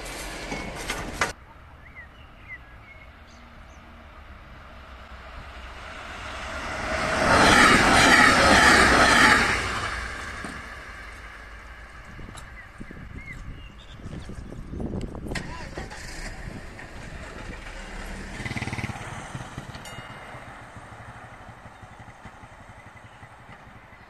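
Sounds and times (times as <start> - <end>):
train wheels rushing on rail: 0.0 - 2.0, 3.5 - 24.0
birds chirping: 1.4 - 4.2, 12.1 - 15.0, 19.9 - 24.0.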